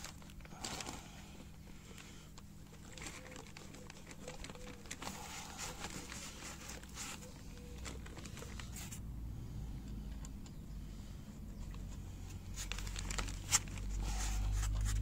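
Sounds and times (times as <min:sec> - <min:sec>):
plastic wrapping crinkling: 0:00.0 - 0:09.0, 0:12.4 - 0:15.0.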